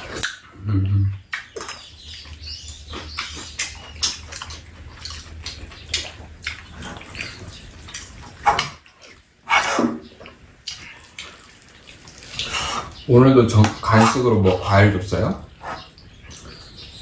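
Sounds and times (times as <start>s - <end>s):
people slurping and chewing: 0.0s - 13.1s.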